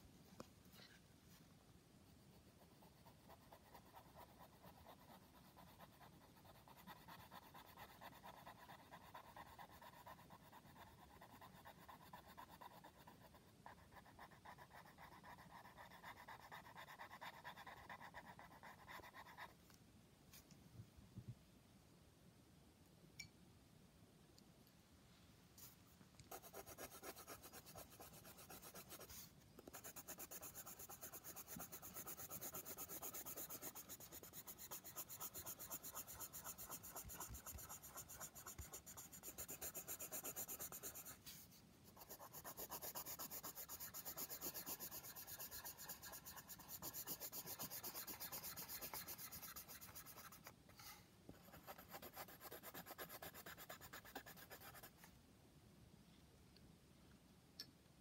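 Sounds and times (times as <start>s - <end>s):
pencil scratching on paper: 2.3s - 19.6s, 26.3s - 55.0s.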